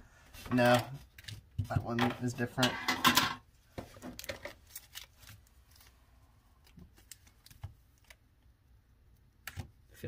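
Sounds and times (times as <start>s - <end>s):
card packs rustling: 0.4s - 2.7s, 3.8s - 6.0s.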